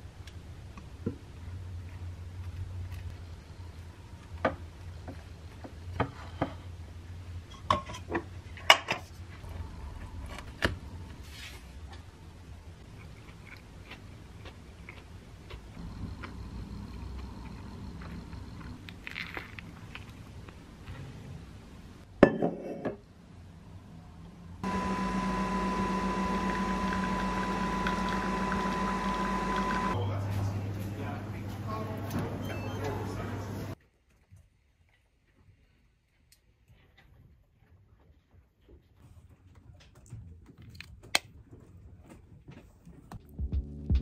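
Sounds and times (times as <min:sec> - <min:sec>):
coffee machine humming and whining: 0:24.6 - 0:30.0.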